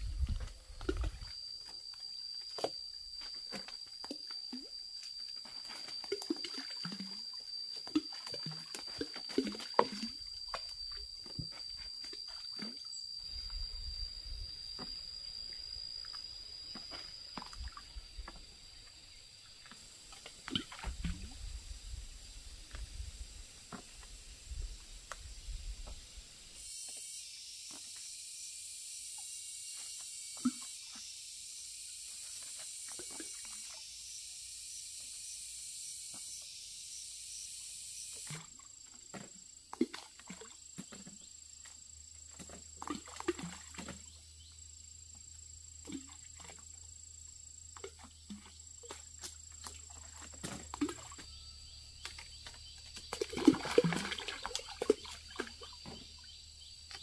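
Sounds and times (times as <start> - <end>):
high-pitched insect buzzing: 0.0 - 39.7.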